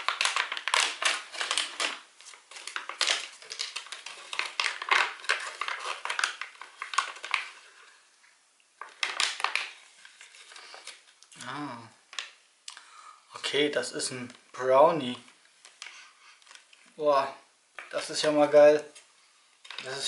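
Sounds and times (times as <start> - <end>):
foil packaging crinkling and tearing: 0.0 - 8.0, 8.8 - 11.3, 15.6 - 17.0, 19.6 - 20.0.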